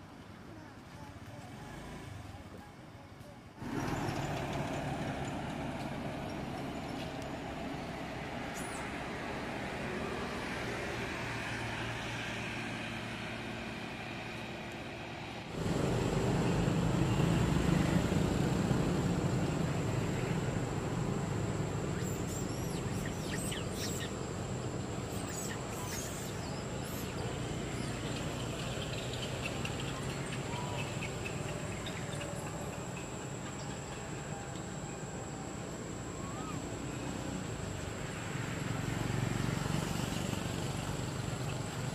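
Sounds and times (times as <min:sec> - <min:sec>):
short chirping calls: 0:21.9 - 0:32.6.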